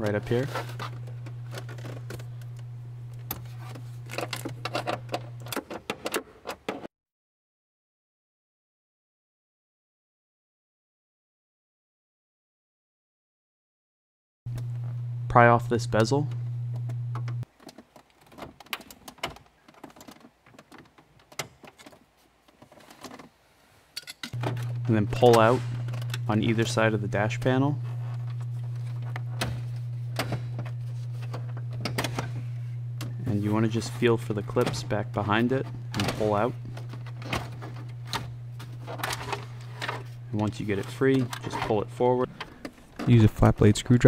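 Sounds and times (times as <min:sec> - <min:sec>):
steady low hum: 0:00.0 - 0:05.6, 0:14.5 - 0:17.4, 0:24.4 - 0:44.0.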